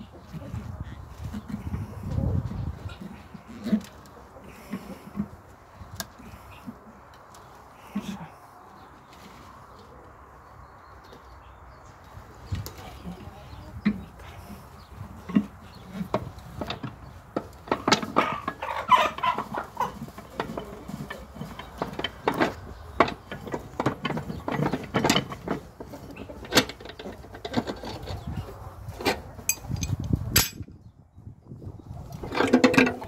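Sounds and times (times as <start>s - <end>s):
hens clucking: 0.0s - 30.3s
metal clicks knocks and scrapes: 15.3s - 28.3s, 29.0s - 30.7s.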